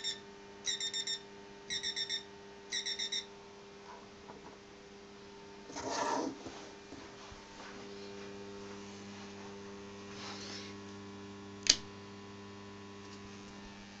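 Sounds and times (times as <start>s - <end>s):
electrical mains hum: 0.0s - 14.0s
sharp click: 11.6s - 11.9s.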